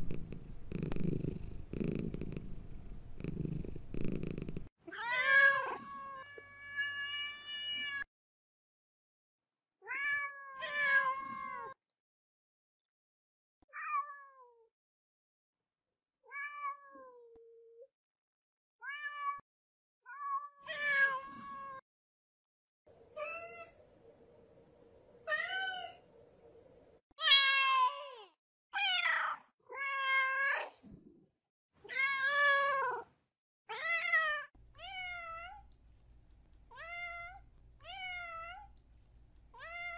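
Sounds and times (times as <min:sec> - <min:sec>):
cats meowing: 0:39.5 - 0:39.9.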